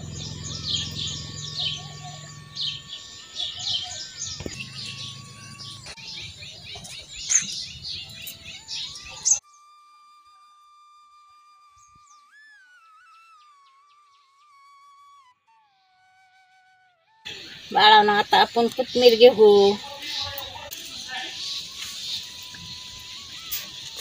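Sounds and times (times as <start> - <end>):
birds chirping: 0.0 - 9.4, 17.3 - 24.0
faint outdoor hum: 0.0 - 9.4
flute-like background music: 0.4 - 17.2.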